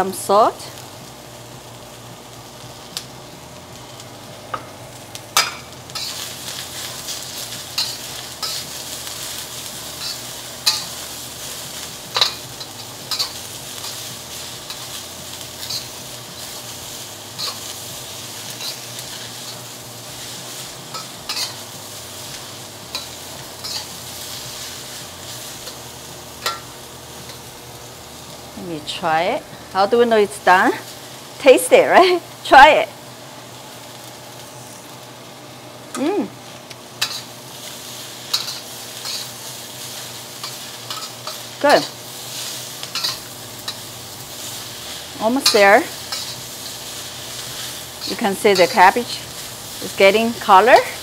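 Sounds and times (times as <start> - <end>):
cabbage sizzling in a wok: 0.0 - 51.0
metal spatula scraping a wok: 5.4 - 27.5, 37.0 - 51.0.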